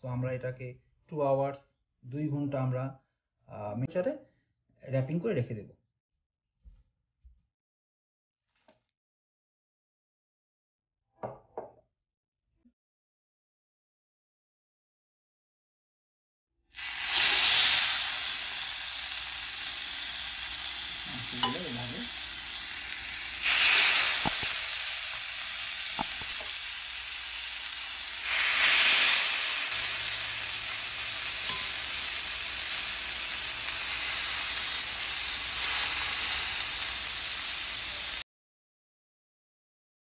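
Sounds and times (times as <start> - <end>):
chicken sizzling on grill pan: 16.8 - 38.2.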